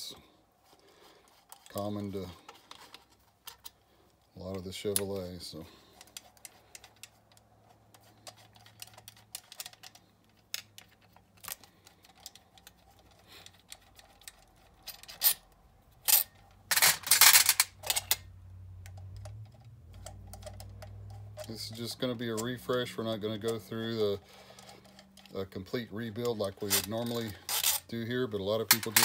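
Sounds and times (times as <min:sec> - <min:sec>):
screwdriver clicking and scraping: 0:01.2 - 0:03.8, 0:05.9 - 0:18.2, 0:23.4 - 0:25.4, 0:26.2 - 0:28.0
screws clattering into metal tray: 0:16.1 - 0:18.2, 0:26.6 - 0:27.9, 0:28.6 - 0:29.0.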